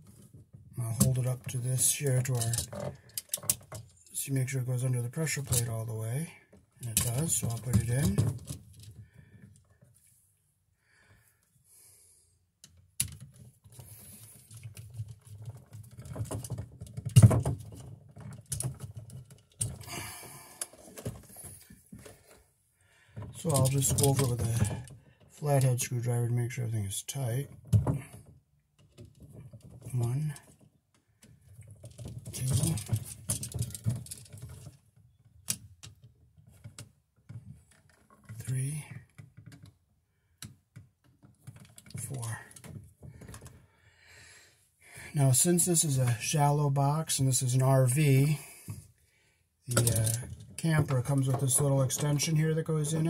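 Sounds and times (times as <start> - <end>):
small clicks scrapes and rustles: 0.0 - 4.2, 12.6 - 19.9, 27.5 - 43.6, 49.7 - 53.0.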